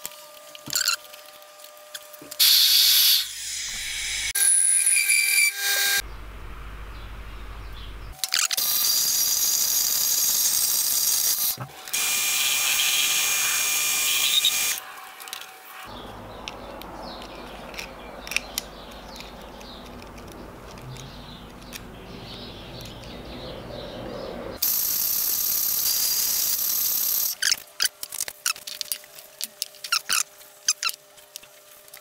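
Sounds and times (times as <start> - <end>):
bandsaw cutting metal tube: 0.0 - 6.0, 8.5 - 15.9.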